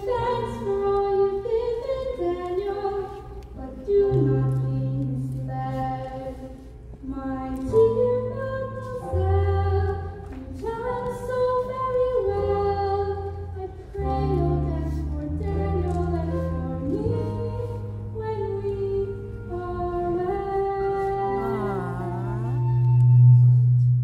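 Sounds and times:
person singing: 14.0 - 23.9
sustained bass notes: 14.0 - 24.0.

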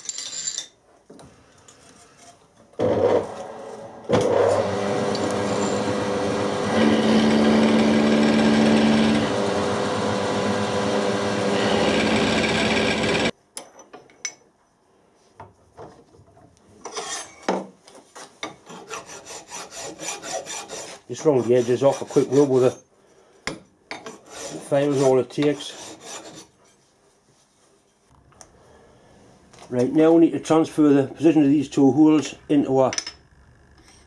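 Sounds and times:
milling machine cutting steel: 4.1 - 13.3.

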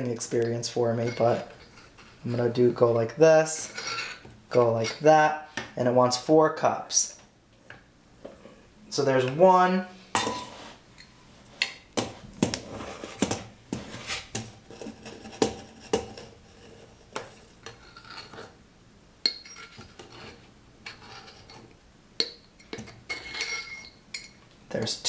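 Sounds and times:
metal cup scraping canister: 3.6 - 5.0.

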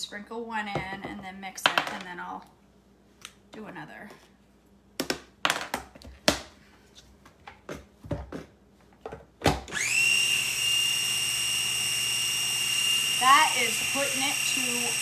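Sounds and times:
food chopper motor whining: 9.7 - 15.0.

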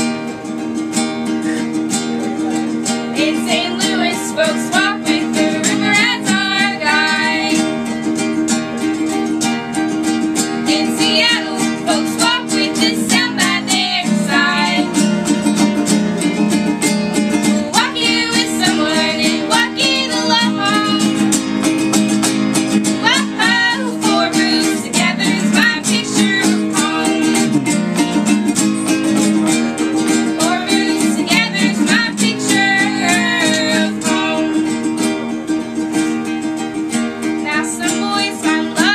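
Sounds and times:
strummed ukulele and guitar: 0.0 - 38.9
voices singing: 3.1 - 8.1, 10.6 - 15.6, 17.5 - 21.5, 22.8 - 27.8, 30.0 - 35.0, 37.4 - 38.9.

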